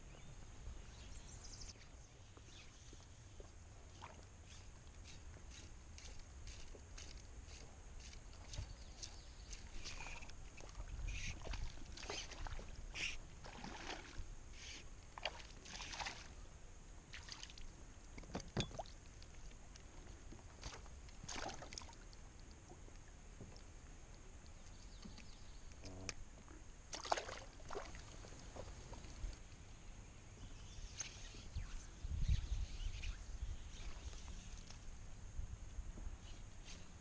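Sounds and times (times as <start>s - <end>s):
water splashes and drips: 8.3s - 12.7s, 13.4s - 14.3s, 15.2s - 16.3s, 17.1s - 17.7s, 20.6s - 22.5s, 26.9s - 28.7s.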